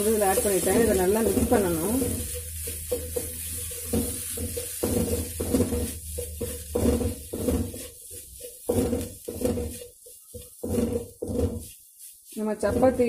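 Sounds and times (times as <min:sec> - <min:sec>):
light sizzle: 0:00.0 - 0:13.0
spatula scraping a metal pan: 0:00.0 - 0:13.0.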